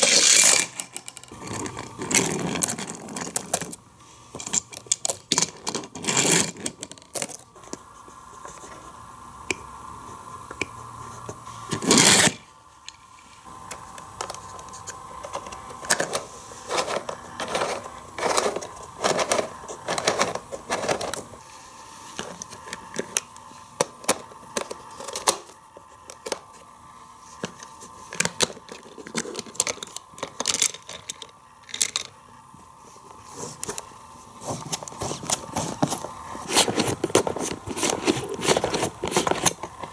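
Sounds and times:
plastic toy track clicks and rattles: 0.0s - 3.8s, 15.3s - 21.2s, 28.2s - 32.1s.

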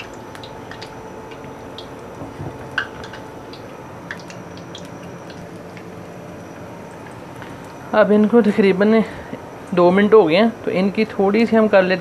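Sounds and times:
deep-frying sizzle with pops: 0.0s - 8.4s.

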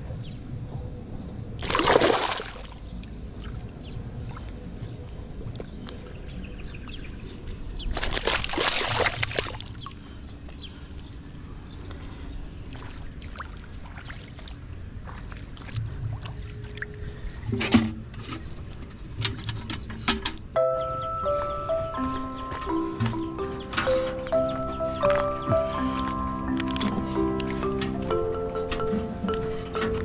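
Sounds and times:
water sloshing and splashing: 1.6s - 6.4s, 7.8s - 10.1s, 12.6s - 20.5s.

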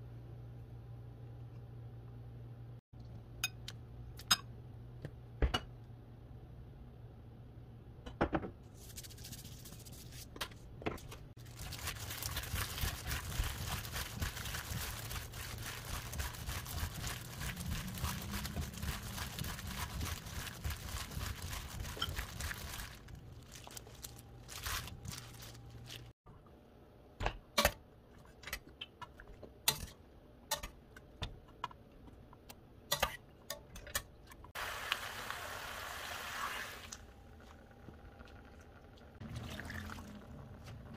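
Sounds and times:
peppers squishing and rustling: 11.4s - 26.2s
plastic glove crinkling: 11.4s - 26.2s.

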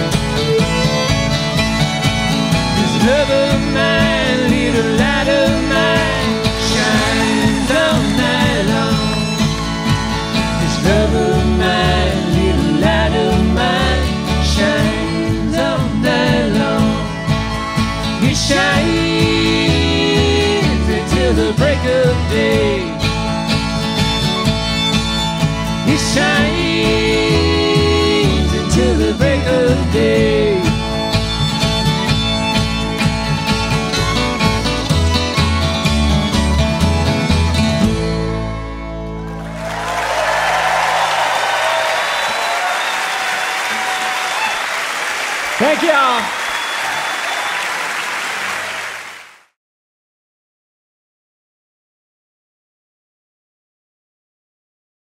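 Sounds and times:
fiddle melody bending in pitch: 0.0s - 14.4s, 16.2s - 39.6s
strummed acoustic guitars: 0.0s - 39.9s
bluegrass string band playing: 0.0s - 40.8s
upright bass: 0.0s - 40.8s.

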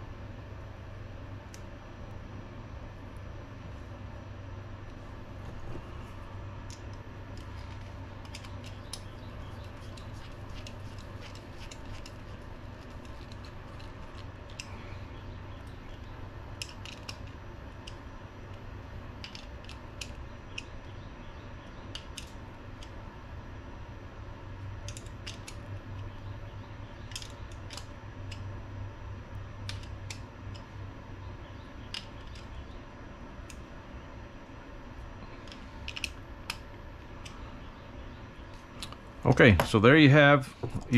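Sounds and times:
steady low hum: 0.0s - 40.9s
small metal clicks and taps: 6.7s - 14.7s, 19.2s - 20.7s, 27.0s - 28.4s, 29.6s - 30.7s.

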